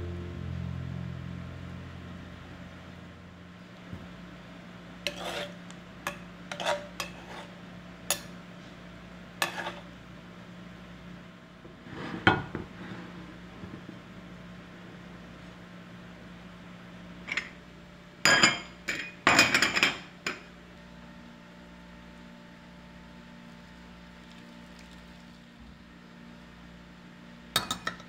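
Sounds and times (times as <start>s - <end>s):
faint steady hum: 0.0s - 28.0s
metal utensils clinking on plate: 27.6s - 28.0s.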